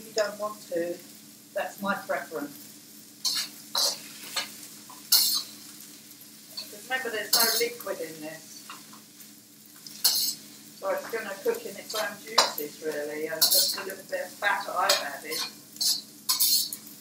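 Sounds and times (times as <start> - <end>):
vegetables sizzling in wok: 0.0 - 17.0
utensil scraping wok: 3.2 - 5.8, 6.4 - 17.0.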